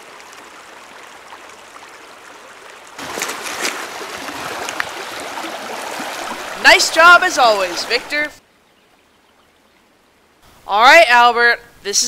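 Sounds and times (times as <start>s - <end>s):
creek running over stones: 0.0s - 8.4s
hands splashing in water: 3.0s - 8.2s.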